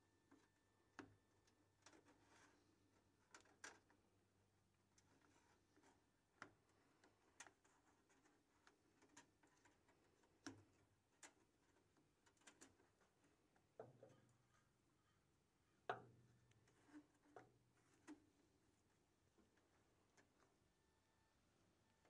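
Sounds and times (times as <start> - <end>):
small metal clicks and taps: 0.3 - 2.5, 3.2 - 4.0, 5.0 - 14.4, 15.8 - 18.3.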